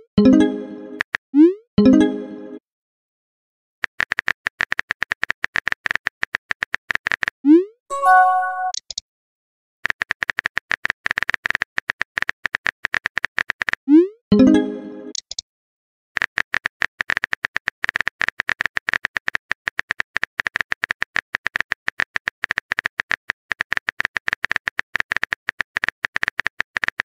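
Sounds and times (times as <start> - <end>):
notification tone: 0.2 - 1.0, 1.8 - 2.6, 7.9 - 8.8, 14.3 - 15.1.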